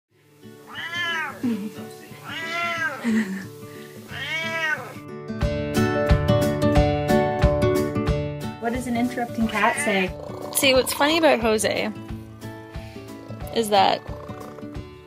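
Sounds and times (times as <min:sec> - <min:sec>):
cat meowing: 0:00.7 - 0:03.0, 0:04.1 - 0:05.0, 0:09.5 - 0:11.0
music with a beat: 0:05.4 - 0:15.0.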